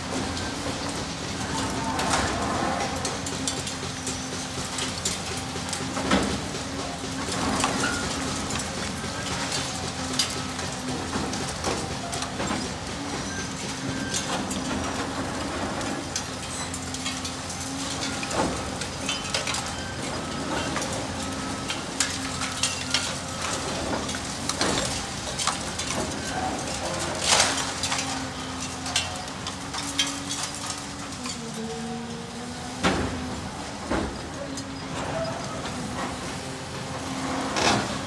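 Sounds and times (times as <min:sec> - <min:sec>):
excavator engine hum: 0:00.0 - 0:38.0
bricks and debris clattering: 0:14.0 - 0:31.4.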